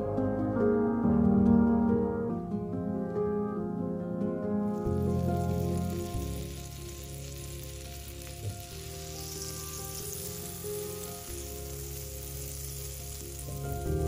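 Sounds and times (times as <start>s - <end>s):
butter sizzling in a frying pan: 4.8s - 14.0s.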